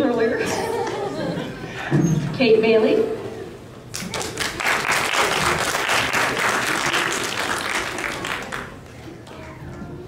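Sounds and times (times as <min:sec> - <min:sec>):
audience applauding: 0:03.9 - 0:08.9.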